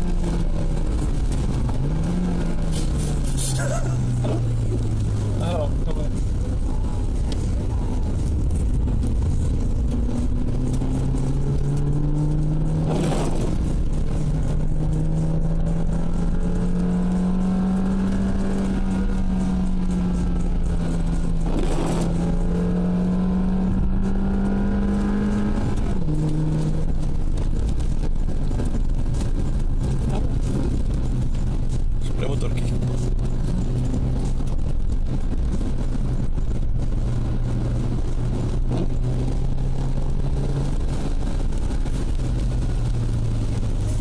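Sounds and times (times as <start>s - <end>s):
car engine running: 0.0s - 44.0s.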